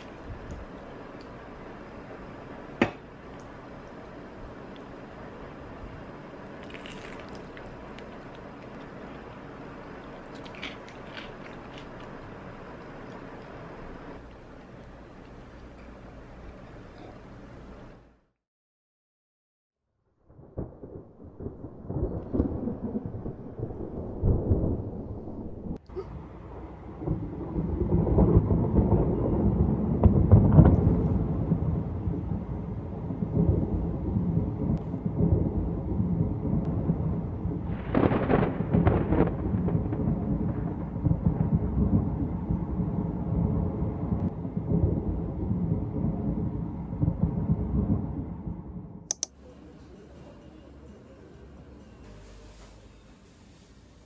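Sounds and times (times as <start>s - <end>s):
thunder rumbling: 0.0s - 16.5s, 20.2s - 49.1s
sharp thunder peal: 20.3s - 25.8s, 26.4s - 49.0s.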